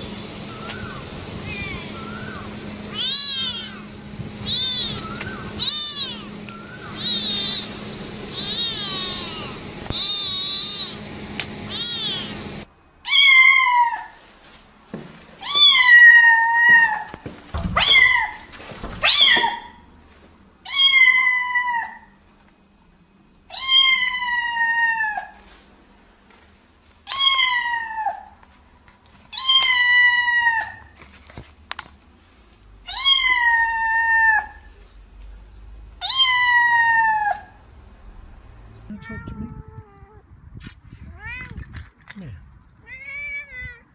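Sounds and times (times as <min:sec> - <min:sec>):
kittens meowing: 0:00.7 - 0:11.0, 0:11.7 - 0:12.3, 0:15.4 - 0:17.2, 0:17.8 - 0:19.8, 0:20.7 - 0:22.2, 0:23.5 - 0:25.4, 0:27.1 - 0:28.4, 0:29.3 - 0:31.0, 0:32.8 - 0:35.0, 0:36.0 - 0:37.6, 0:42.8 - 0:43.9.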